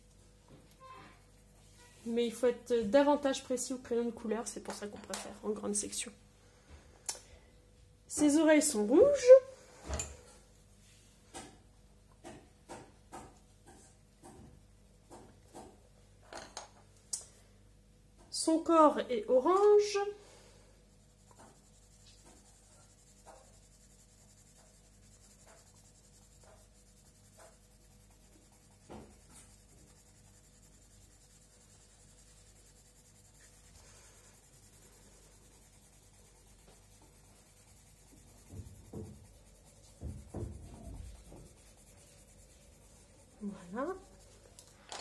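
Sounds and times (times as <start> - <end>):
pencil scratching on paper: 20.9 - 44.6.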